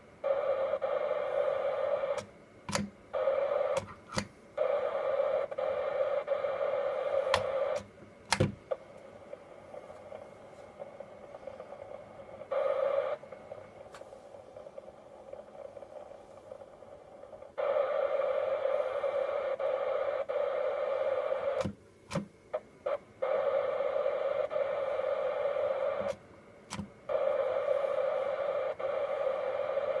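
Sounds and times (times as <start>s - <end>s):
radio receiver hiss: 0.0s - 30.0s
sharp clicks: 2.1s - 3.0s, 3.7s - 4.3s, 26.0s - 26.9s.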